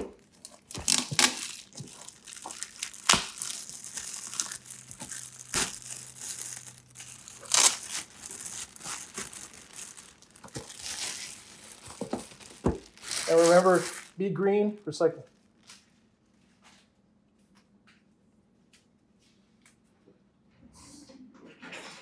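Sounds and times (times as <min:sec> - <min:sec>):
plastic wrap crinkling and tearing: 0:00.0 - 0:15.9.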